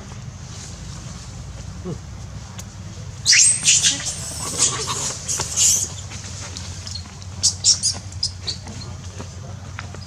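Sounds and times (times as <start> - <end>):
macaques squealing: 3.2 - 6.2, 6.8 - 8.7.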